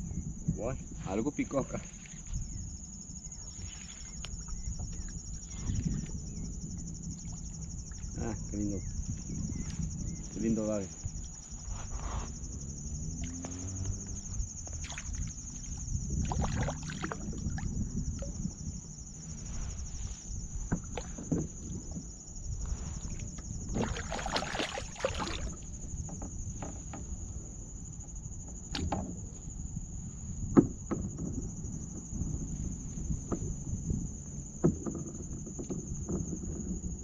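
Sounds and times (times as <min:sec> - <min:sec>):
light water splashing: 0:13.1 - 0:18.4, 0:22.8 - 0:25.7.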